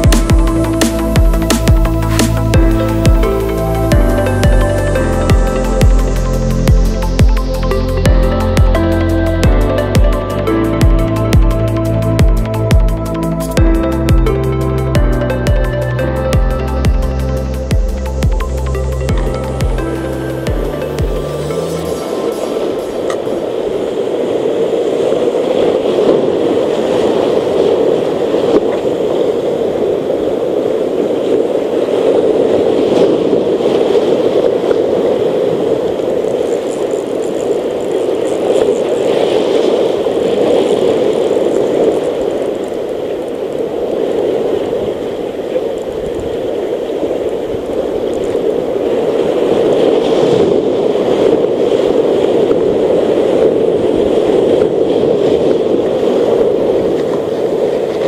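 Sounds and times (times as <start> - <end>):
surf breaking over rocks: 0.0 - 58.0.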